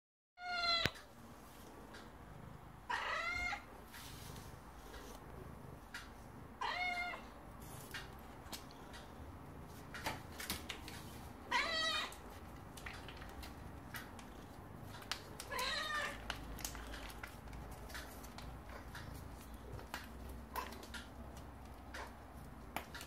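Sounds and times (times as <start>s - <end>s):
cat meowing: 0.4s - 1.0s, 2.9s - 3.6s, 6.6s - 7.3s, 11.5s - 12.2s, 15.5s - 16.2s.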